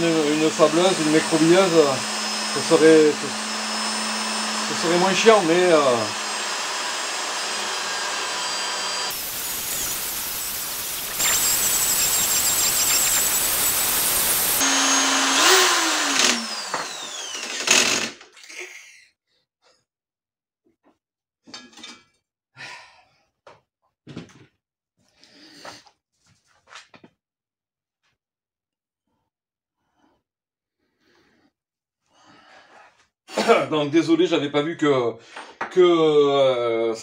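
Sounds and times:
drill scrubbing whir: 0:00.0 - 0:18.2.

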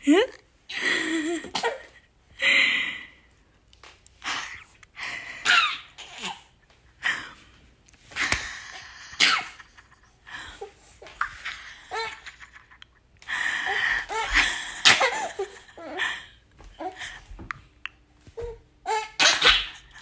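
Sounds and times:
baby laughing and squealing: 0:18.9 - 0:20.0.

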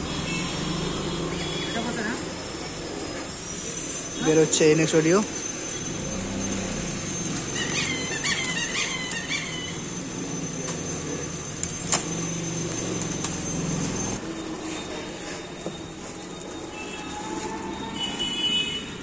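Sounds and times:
foam packing squeaking: 0:03.0 - 0:18.2.

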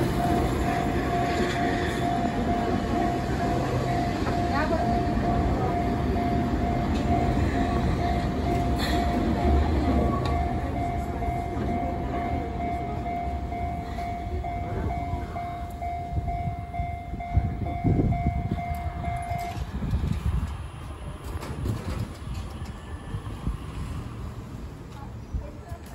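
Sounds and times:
level-crossing alarm ringing: 0:00.0 - 0:19.8
train rumbling past: 0:00.0 - 0:25.9.

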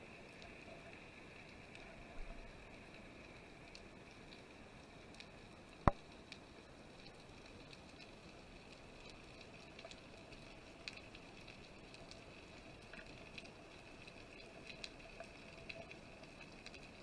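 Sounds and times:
sharp clicks and crackles: 0:00.3 - 0:17.0.

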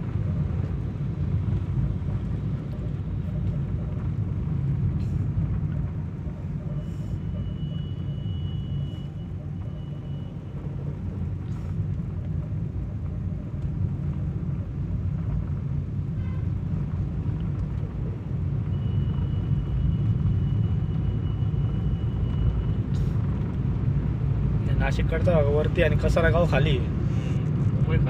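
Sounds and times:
vehicle engine and road rumble: 0:00.0 - 0:28.0
faint high whine: 0:06.2 - 0:11.8.

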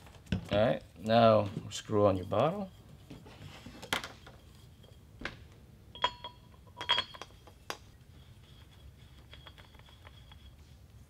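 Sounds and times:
metal clinks and taps: 0:05.9 - 0:07.8, 0:09.1 - 0:10.5.

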